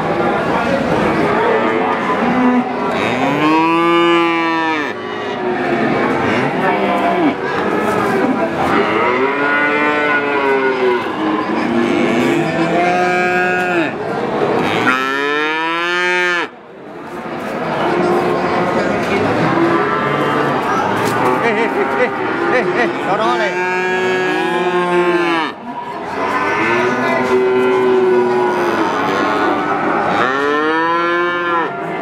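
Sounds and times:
steady background noise: 0.0s - 32.0s
calves mooing: 2.3s - 7.4s, 8.7s - 14.0s, 14.6s - 16.5s, 26.2s - 31.9s.

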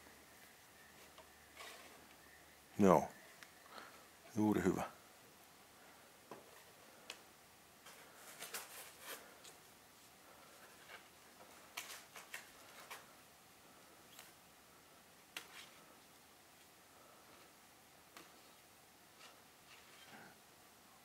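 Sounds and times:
paper rustling: 1.0s - 2.1s, 7.8s - 14.4s.

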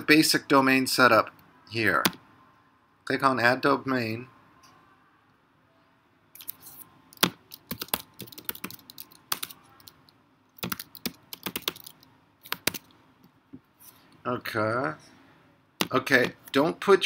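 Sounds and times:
keyboard typing clicks: 7.2s - 12.9s.

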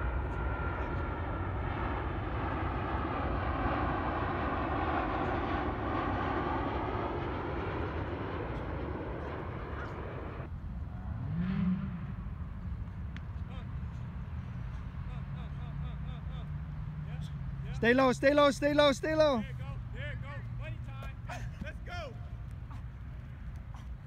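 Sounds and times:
aircraft engine drone: 0.0s - 11.1s.

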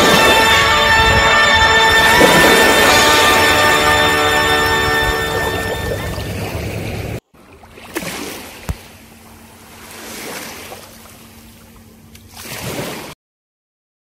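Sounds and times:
waves washing on sandy shore: 9.6s - 11.1s.

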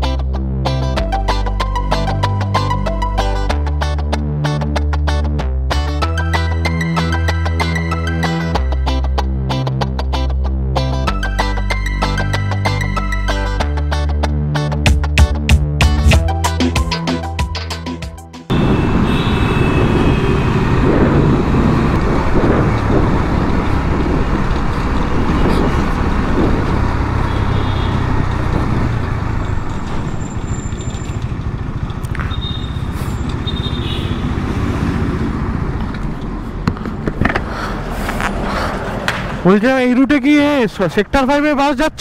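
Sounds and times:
surrounding traffic: 0.0s - 15.3s, 16.1s - 42.0s
motorcycle engine running: 18.5s - 37.0s
wind and road noise: 18.5s - 42.0s.

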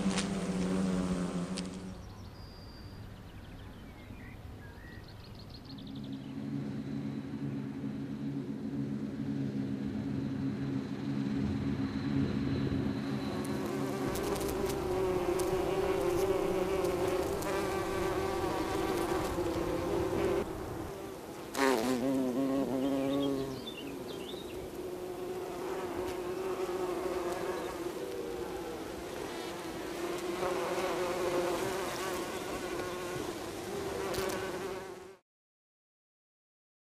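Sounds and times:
bee flying close past: 0.0s - 2.1s, 13.1s - 35.2s
bees buzzing: 0.0s - 2.1s, 12.8s - 35.2s.

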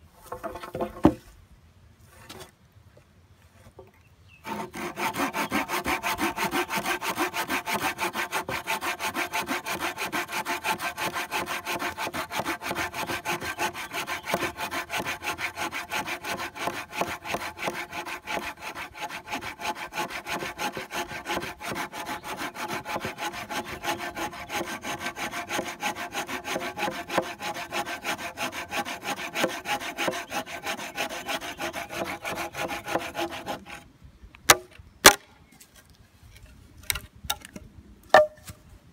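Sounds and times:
hand saw rasping through branch: 4.4s - 33.8s.

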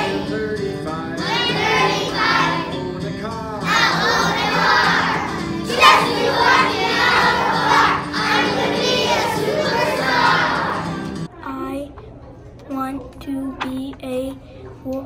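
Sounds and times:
children singing: 0.0s - 3.0s, 3.6s - 11.3s
music: 0.0s - 11.3s.

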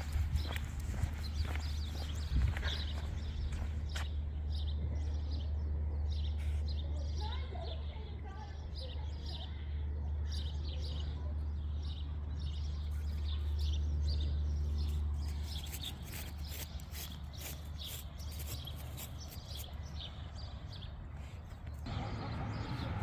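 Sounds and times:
steady low rumble: 0.0s - 7.0s
small birds chirping: 0.0s - 23.0s.

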